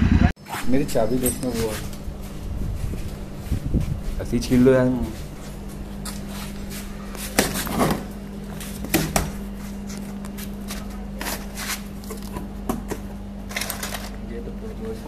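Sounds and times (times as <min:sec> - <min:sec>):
steady low hum: 0:00.0 - 0:15.0
packing tape tearing: 0:13.5 - 0:14.2.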